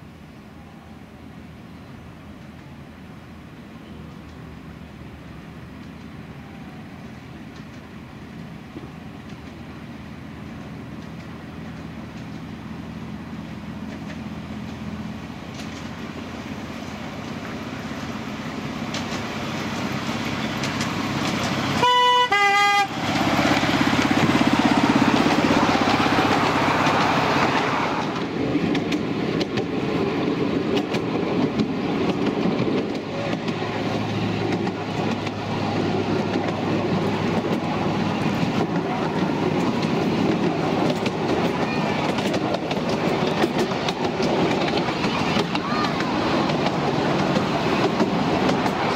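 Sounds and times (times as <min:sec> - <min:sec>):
wheels clattering on track: 0:07.0 - 0:48.9
miniature train engine running: 0:16.8 - 0:48.9
train horn notes: 0:21.8 - 0:23.0.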